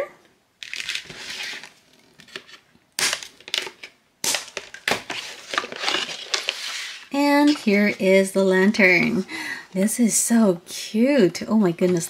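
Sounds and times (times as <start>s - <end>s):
plastic and cardboard crinkling: 0.6s - 8.2s.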